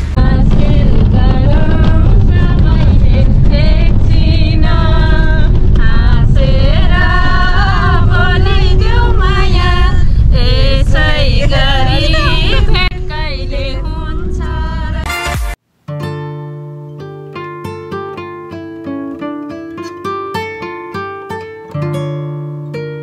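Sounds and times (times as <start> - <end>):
minibus engine and road noise: 0.0 - 15.8
woman singing: 0.2 - 15.2.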